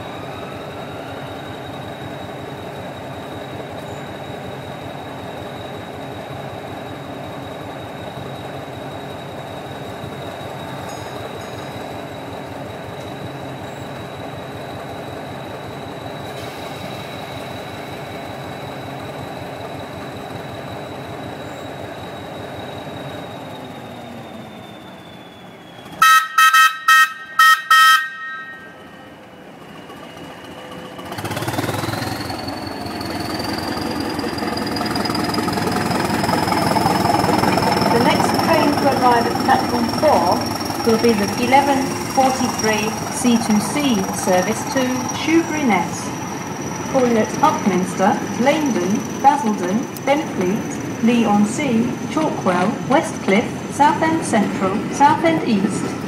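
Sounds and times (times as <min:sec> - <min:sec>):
diesel train engine with high whine: 0:00.0 - 0:56.0
train horn toots: 0:26.0 - 0:28.8.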